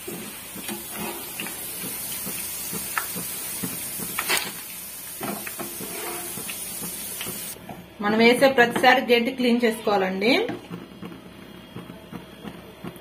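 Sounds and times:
food sizzling in hot oil: 0:00.0 - 0:07.6.

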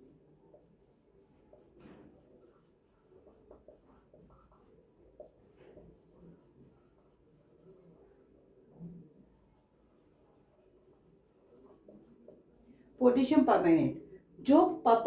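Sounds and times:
marker squeaking on whiteboard: 0:00.5 - 0:07.2.

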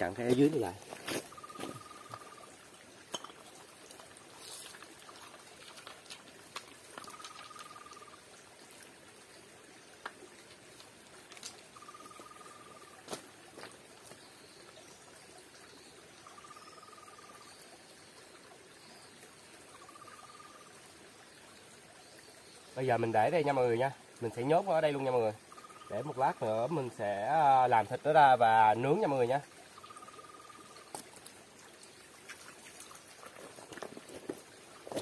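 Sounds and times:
stream trickling: 0:00.0 - 0:35.0
high chirping call: 0:01.1 - 0:02.5, 0:07.0 - 0:08.2, 0:11.8 - 0:13.0, 0:25.5 - 0:26.4, 0:29.8 - 0:30.9
stones knocking: 0:03.1 - 0:03.6, 0:33.3 - 0:35.0.

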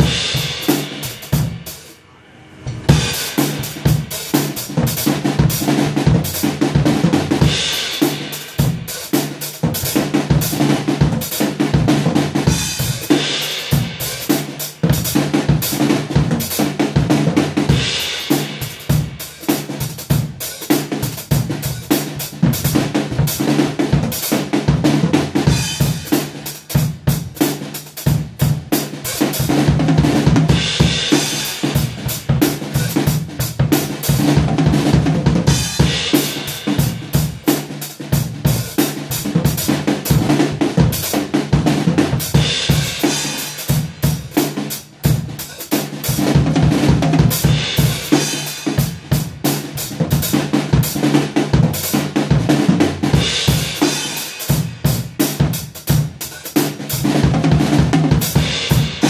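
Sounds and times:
cymbal crashes: 0:00.0 - 0:05.2
drum kit playing: 0:00.0 - 0:59.0.

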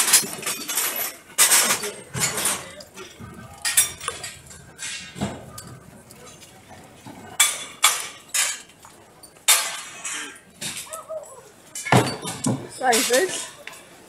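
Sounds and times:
sharp knocks and clinks: 0:11.7 - 0:13.8.

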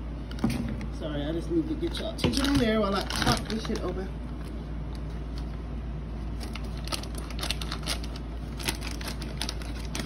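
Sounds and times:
packaging clicks and crinkles: 0:01.9 - 0:05.6, 0:06.2 - 0:10.0.

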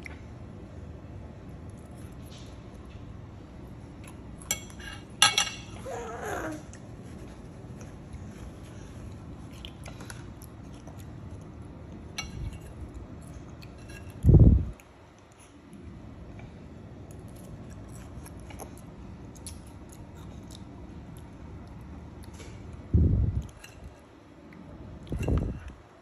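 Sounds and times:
fork clinking on a plate: 0:04.4 - 0:05.8, 0:12.2 - 0:12.8.

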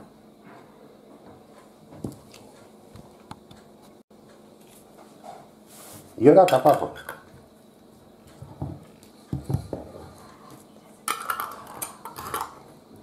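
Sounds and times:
metallic clatter of lids: 0:11.1 - 0:12.6.

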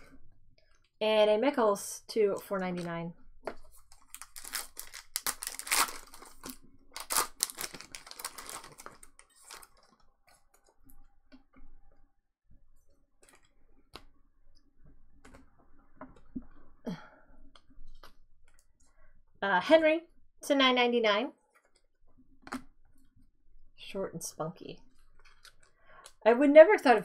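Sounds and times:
foil wrapper crinkling and tearing: 0:03.9 - 0:10.0.

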